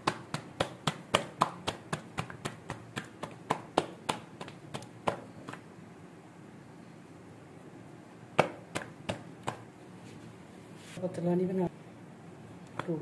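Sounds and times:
dough slapped between hands: 0.0s - 5.7s, 8.3s - 9.7s, 12.8s - 13.0s.

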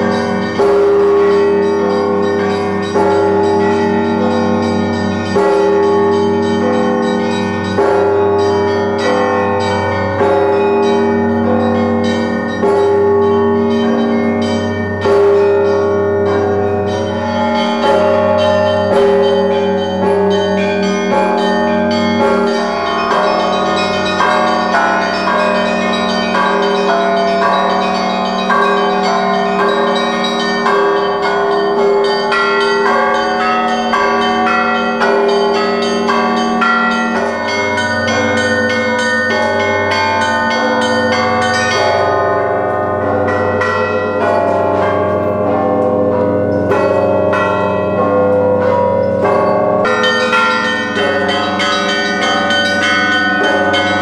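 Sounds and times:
deep bass church bell: 0.0s - 54.0s
smaller bells ringing: 0.0s - 54.0s.

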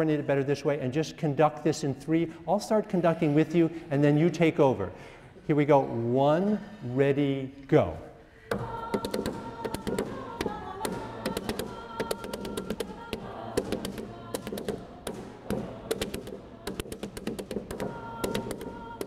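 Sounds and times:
group singing: 8.4s - 19.0s
sharp percussive taps: 8.5s - 19.0s.

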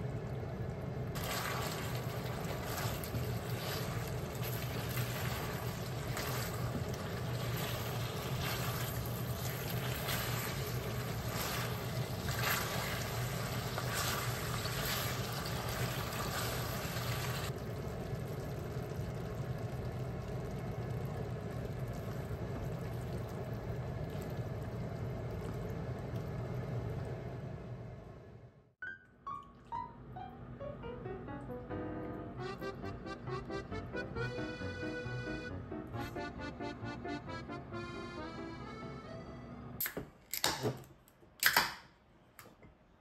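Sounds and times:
sauce bubbling and sizzling: 0.0s - 27.8s
steady low hum: 30.1s - 39.8s.

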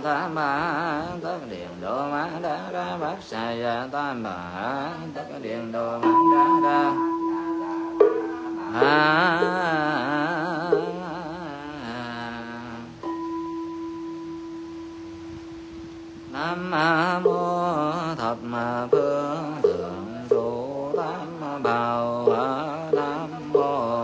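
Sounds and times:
person chanting: 0.0s - 14.7s, 16.2s - 24.0s
bell ringing: 6.0s - 11.2s, 13.0s - 15.2s.

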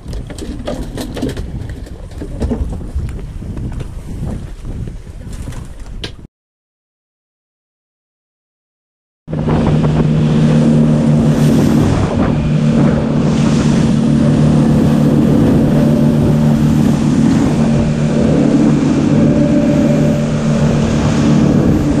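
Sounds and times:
outboard motors droning: 9.3s - 22.0s
water rushing and spray: 9.3s - 22.0s.

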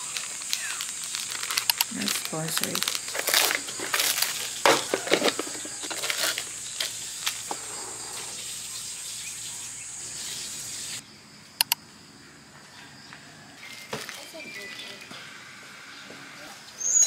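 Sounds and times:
plastic packaging crinkling and tearing: 0.0s - 7.6s
high insect buzz: 0.0s - 11.0s.

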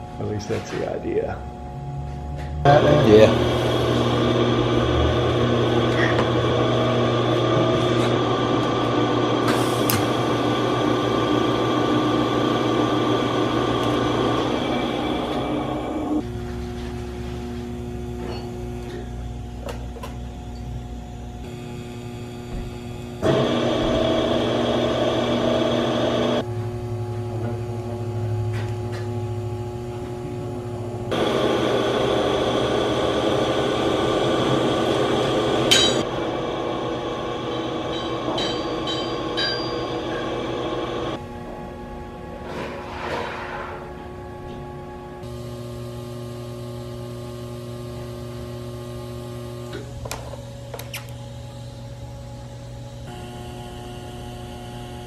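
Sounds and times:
welder humming: 0.0s - 41.2s, 45.2s - 55.0s
welding arc hissing: 3.0s - 16.4s, 20.9s - 26.5s, 31.1s - 41.2s.

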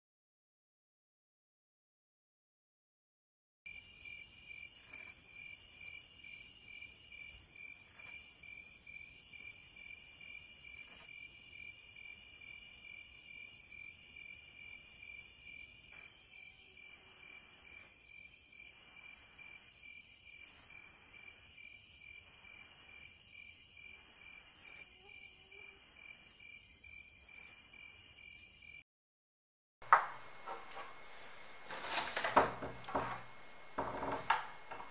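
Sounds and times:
crickets trilling: 3.7s - 28.8s
high insect buzz: 3.7s - 28.8s.

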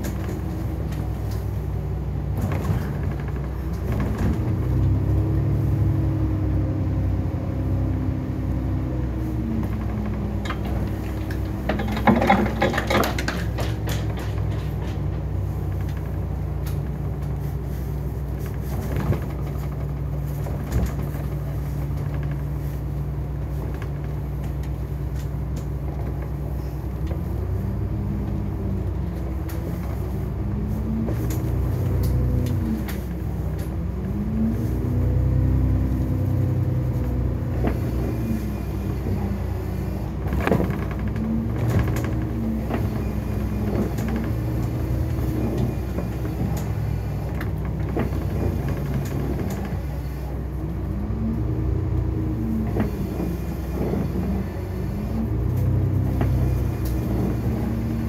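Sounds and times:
bus engine rumbling: 0.0s - 58.0s
knocks and rattles: 9.6s - 17.0s, 40.2s - 49.9s.

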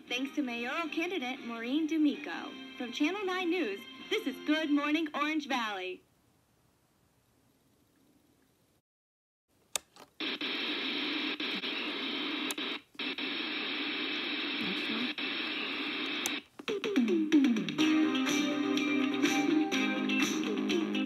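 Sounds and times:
static hiss from small speaker: 9.6s - 16.9s
click: 9.7s - 10.1s, 12.4s - 12.6s, 16.0s - 16.7s
music with guitar: 16.8s - 21.0s.

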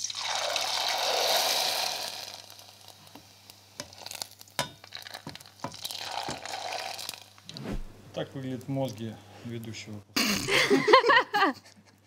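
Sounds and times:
noodles sizzling in hot oil: 0.0s - 7.5s
oil crackling: 0.0s - 9.0s.

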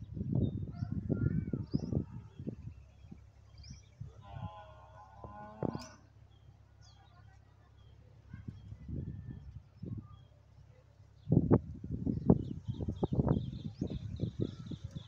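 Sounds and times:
small birds chirping: 0.0s - 15.0s
wavering animal call: 4.2s - 6.1s.

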